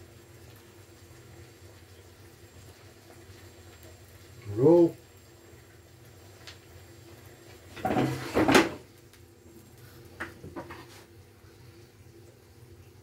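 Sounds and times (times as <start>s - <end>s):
frying pan scraping on hob: 7.7s - 8.9s, 10.4s - 11.1s.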